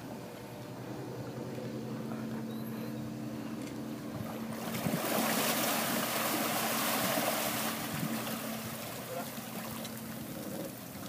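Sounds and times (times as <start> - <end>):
boat engine humming: 0.0 - 11.0
propeller wash churning: 3.3 - 11.0.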